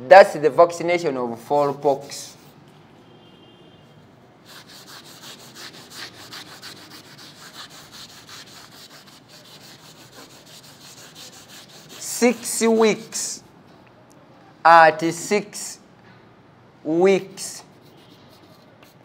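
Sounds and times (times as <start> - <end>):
duster scrubbing a chalkboard: 4.5 - 13.4.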